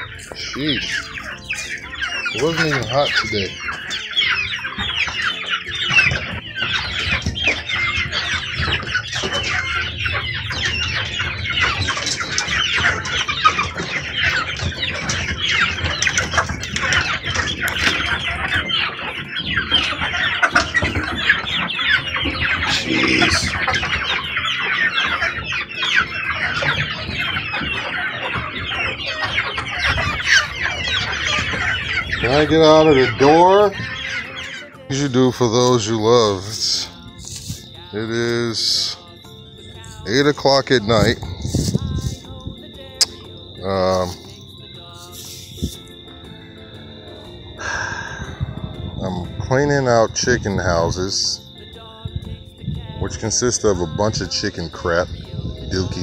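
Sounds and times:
chickens peeping and clucking: 0.0 - 56.0.

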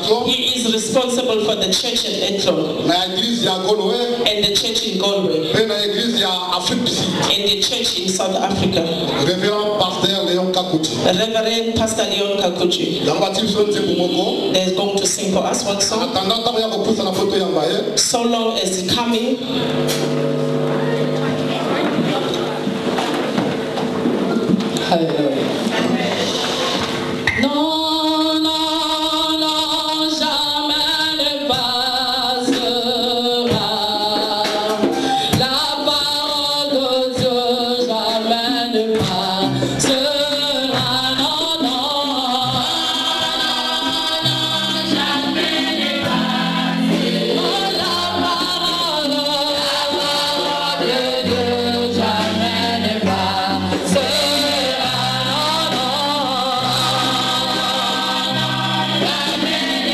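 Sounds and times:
choir singing gospel: 12.0 - 17.8, 25.4 - 59.9
low bass line: 19.4 - 24.9.

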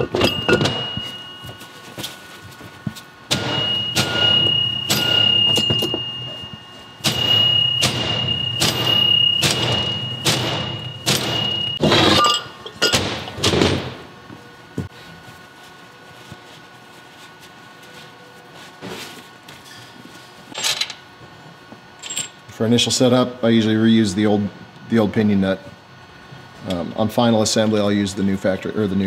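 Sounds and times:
hammer striking steel with ring: 3.3 - 13.0.

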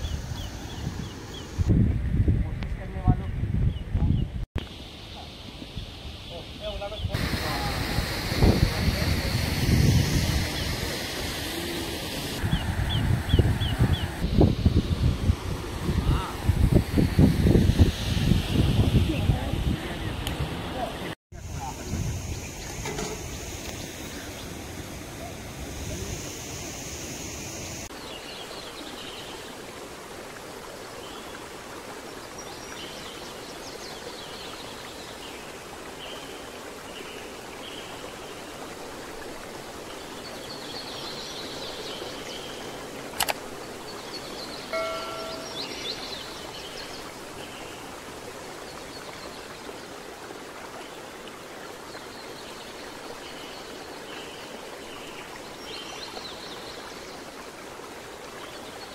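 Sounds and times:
river water flowing: 4.6 - 58.9
sharp click: 43.2 - 43.4
faint high chirps: 44.7 - 46.2
short ringing tone: 44.8 - 45.8.

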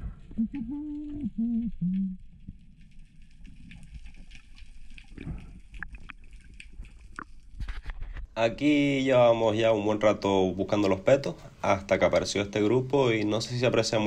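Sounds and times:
underwater water noise: 0.0 - 8.2
faint clicks and crackles: 0.0 - 8.4, 10.6 - 11.3
low hum underwater: 0.0 - 13.8.

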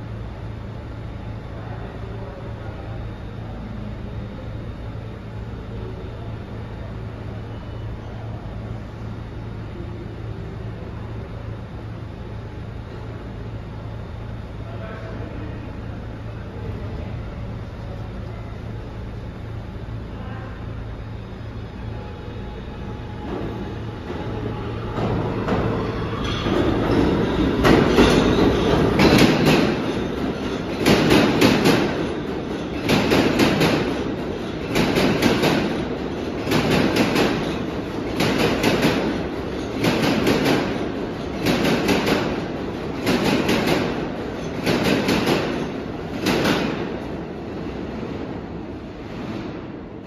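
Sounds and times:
subway wheels clattering over joints: 21.8 - 50.0.

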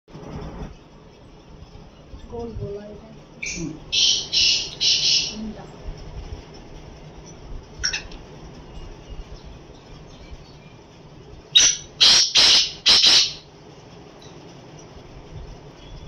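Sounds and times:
bird calling harshly: 3.4 - 5.5, 11.5 - 13.5.

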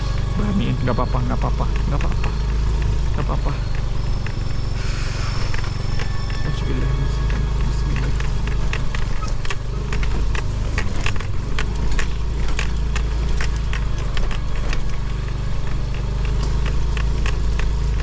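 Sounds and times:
motorcycle engine running: 0.0 - 18.0
irregular clicks and rattles: 5.4 - 18.0.

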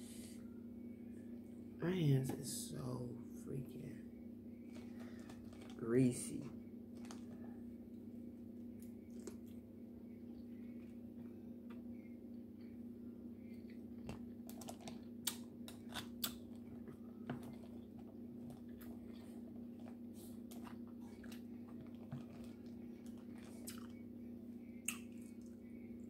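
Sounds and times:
steady low hum: 0.0 - 26.0
crab shell cracking: 14.4 - 16.6.

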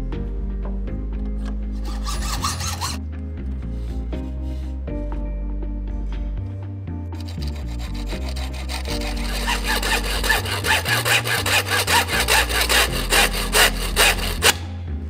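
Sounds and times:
background music: 0.0 - 15.0
hand saw cutting: 1.8 - 3.0, 7.2 - 14.8.

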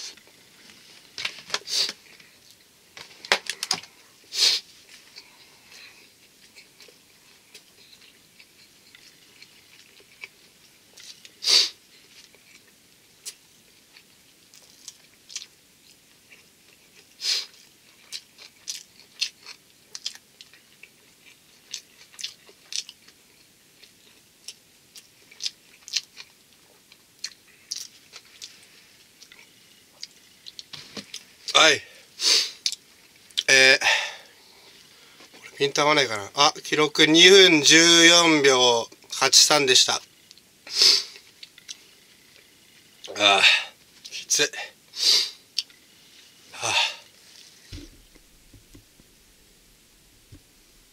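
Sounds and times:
person chewing food: 4.8 - 31.5, 40.1 - 43.2, 45.5 - 50.9
hissing breaths: 46.5 - 47.3.

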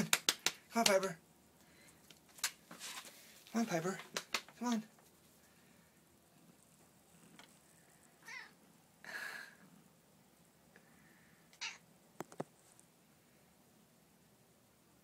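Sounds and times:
cat meowing: 8.2 - 8.6, 11.6 - 11.8.

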